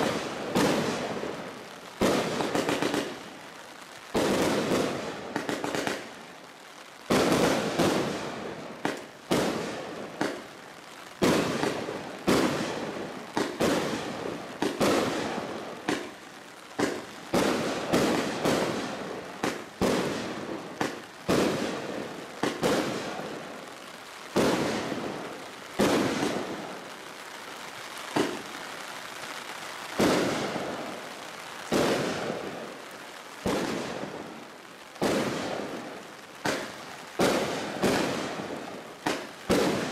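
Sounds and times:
firework barrage bangs: 0:00.0 - 0:01.2, 0:02.0 - 0:03.2, 0:07.1 - 0:10.4, 0:11.2 - 0:16.1, 0:16.8 - 0:23.2, 0:25.8 - 0:26.6, 0:28.1 - 0:28.4, 0:30.0 - 0:30.8, 0:31.7 - 0:32.5, 0:33.4 - 0:34.2, 0:35.0 - 0:35.7, 0:36.4 - 0:39.9.

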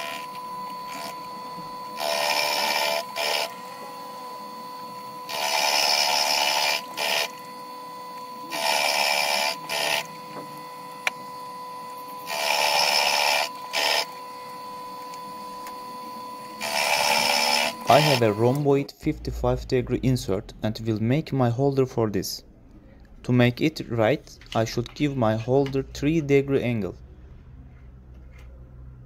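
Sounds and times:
end mill cutting metal: 0:00.0 - 0:18.7
mill drill whining: 0:00.0 - 0:18.7.

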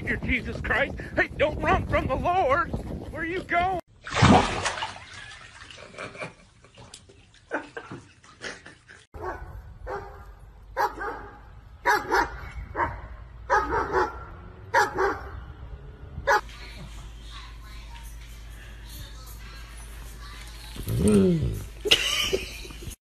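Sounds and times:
dog barking: 0:09.2 - 0:10.2, 0:10.8 - 0:15.4.

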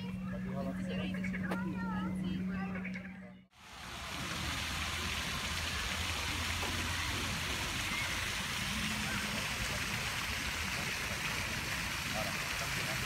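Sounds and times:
fountain water splashing: 0:03.6 - 0:13.0.

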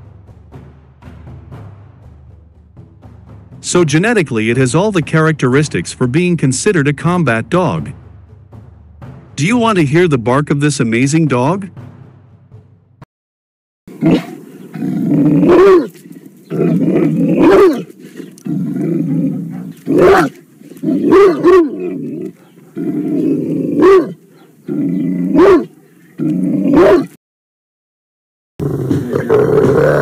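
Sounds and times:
dog growling: 0:13.9 - 0:27.2, 0:28.6 - 0:30.0
loud dog bark: 0:14.0 - 0:14.4, 0:15.5 - 0:15.9, 0:17.4 - 0:17.9, 0:19.4 - 0:20.4, 0:21.0 - 0:21.8, 0:23.8 - 0:24.6, 0:25.3 - 0:25.8, 0:26.7 - 0:27.2.

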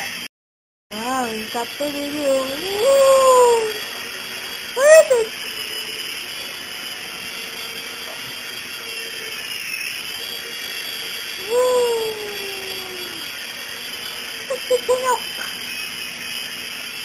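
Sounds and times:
toy helicopter rotors whining: 0:01.0 - 0:17.0
person exclaiming: 0:02.6 - 0:03.8, 0:04.8 - 0:05.3, 0:11.4 - 0:13.3.

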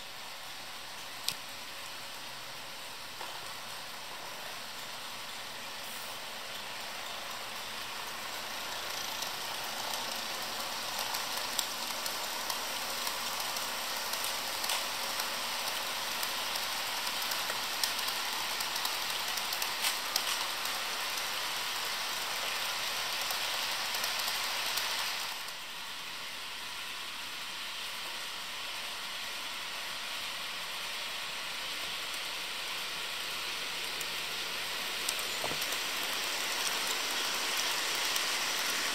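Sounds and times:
model trains running on track: 0:00.0 - 0:38.9
small track clicks: 0:06.5 - 0:25.6, 0:31.8 - 0:38.9.

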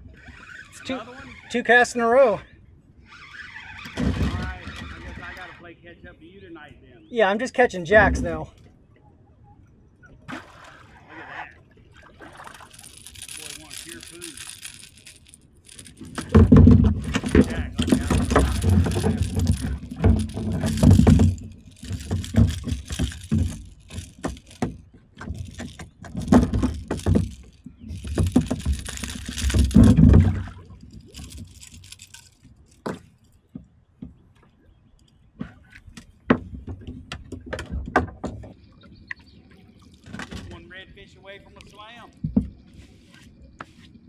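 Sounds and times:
fish flapping and rattling on line: 0:12.2 - 0:33.5.

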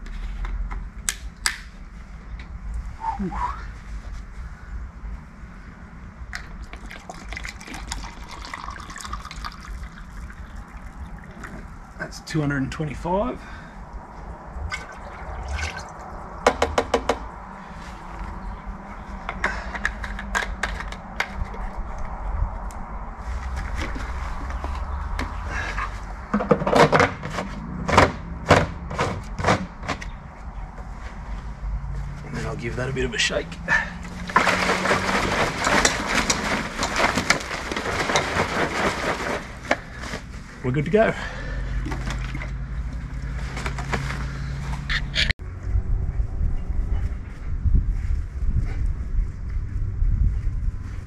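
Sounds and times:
liquid pouring into plastic cup: 0:06.6 - 0:10.8
plastic knocks and scrapes: 0:26.3 - 0:30.1, 0:34.2 - 0:39.8.

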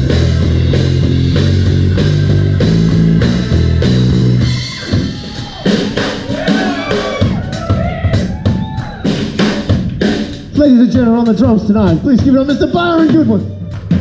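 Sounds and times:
drum hits: 0:00.0 - 0:14.0
rock band playing heavy riff: 0:00.0 - 0:14.0.

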